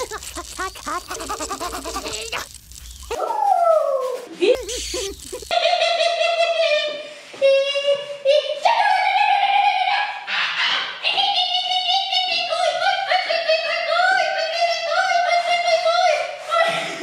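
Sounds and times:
high-pitched wordless singing: 0:00.0 - 0:02.5, 0:06.6 - 0:10.3, 0:11.0 - 0:16.6.

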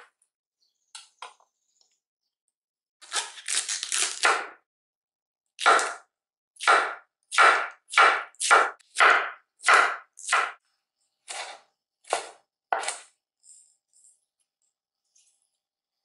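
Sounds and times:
knife slicing cabbage on wooden board: 0:11.2 - 0:13.1.

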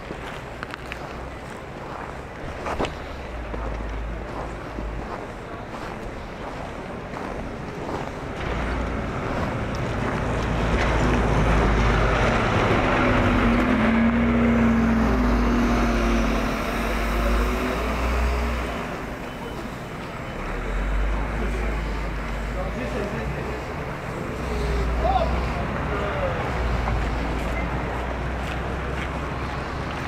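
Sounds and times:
vehicle driving past: 0:08.4 - 0:19.6.

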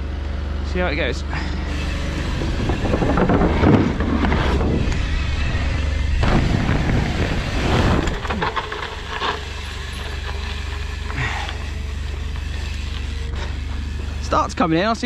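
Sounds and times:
bike tyre noise: 0:01.0 - 0:15.0
wind buffeting microphone: 0:02.2 - 0:09.0.

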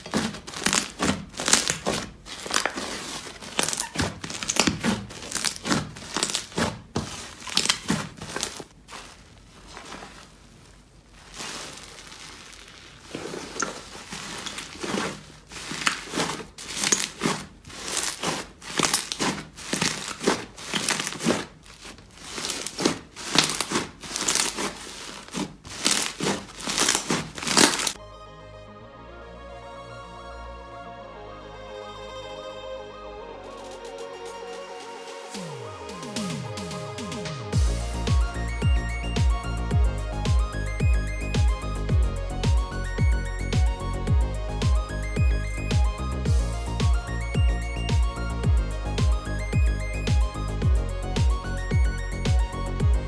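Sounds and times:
slime squishing: 0:00.0 - 0:28.0
music: 0:28.0 - 0:53.0.

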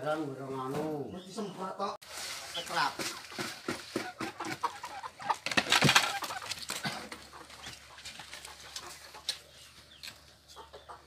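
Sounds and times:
chickens clucking: 0:00.2 - 0:11.0
knocks and clatter: 0:02.9 - 0:07.4.

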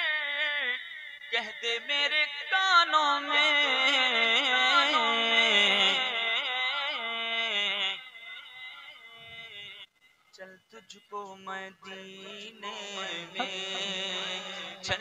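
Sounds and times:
man singing unaccompanied: 0:00.0 - 0:15.0.

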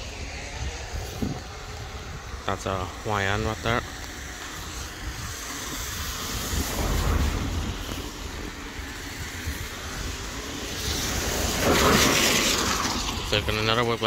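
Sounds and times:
wind rumbling on microphone: 0:00.0 - 0:14.0
car swishing past on wet road: 0:06.1 - 0:13.5.

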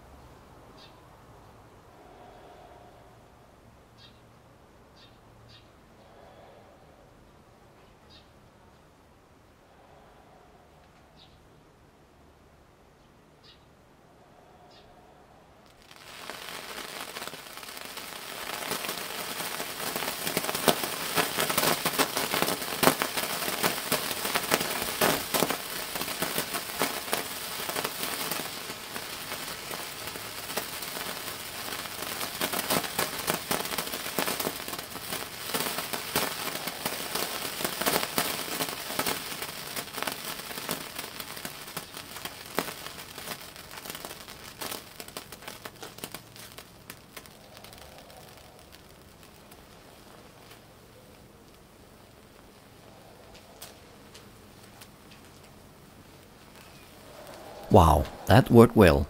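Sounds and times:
phosphorus burning with crackling hiss: 0:15.5 - 0:59.0.

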